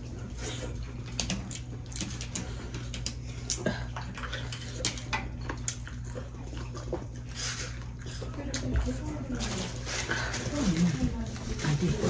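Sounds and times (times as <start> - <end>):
low steady hum: 0.0 - 12.0
eating clicks and smacks: 0.8 - 7.0.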